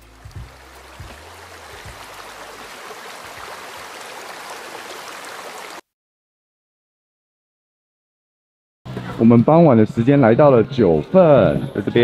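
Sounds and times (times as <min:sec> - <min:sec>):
running water: 0:00.0 - 0:05.8.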